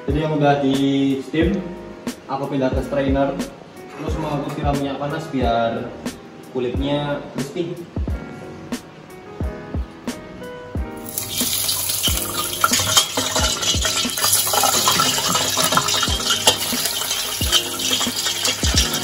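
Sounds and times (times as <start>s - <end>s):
background music with steady beat: 0.0s - 19.0s
hot oil sizzling: 11.0s - 19.0s.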